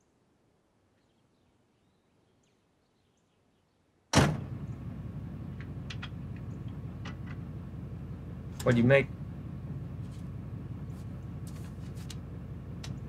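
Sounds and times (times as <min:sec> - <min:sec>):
faint bird chirps: 0:00.9 - 0:04.0
car door shutting: 0:04.2 - 0:07.7
car engine idling: 0:04.2 - 0:13.0
light clicks: 0:12.8 - 0:13.0.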